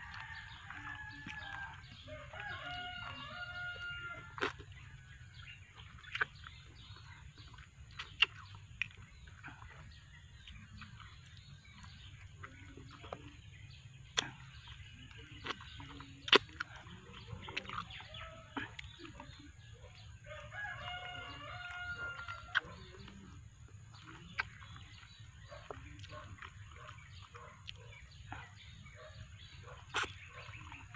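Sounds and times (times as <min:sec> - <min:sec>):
rooster crowing: 0:00.0 - 0:04.4, 0:20.3 - 0:22.6
wet eating clicks and smacks: 0:00.0 - 0:30.9.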